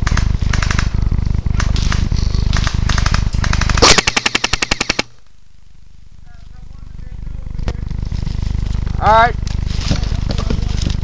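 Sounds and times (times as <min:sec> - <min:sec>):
airsoft gun full-auto burst: 0:00.0 - 0:05.1
handling and wind rumble: 0:00.0 - 0:05.1, 0:07.4 - 0:11.0.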